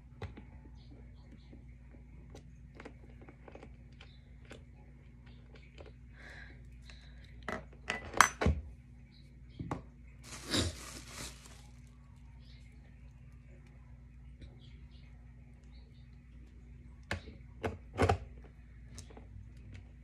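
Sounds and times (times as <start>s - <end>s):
bubble wrap crackling: 10.2s - 12.3s.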